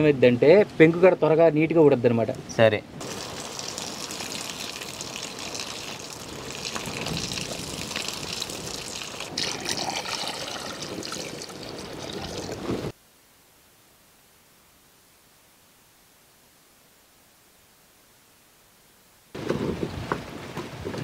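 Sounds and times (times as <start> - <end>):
water pouring into pot: 3.0 - 12.6.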